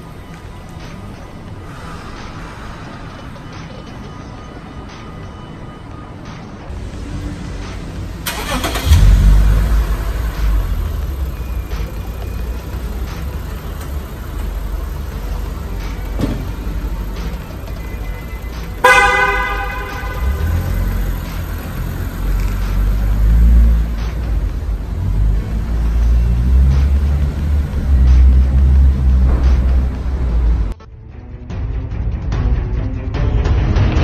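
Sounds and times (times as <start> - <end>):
car engine rumbling: 0.0 - 30.8
car horn blast: 18.8 - 22.1.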